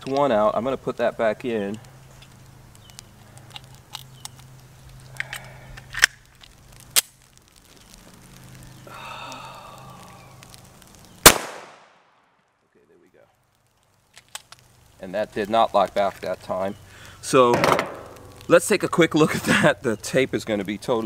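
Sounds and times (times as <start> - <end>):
loud pistol shot with echo: 11.2 - 12.2.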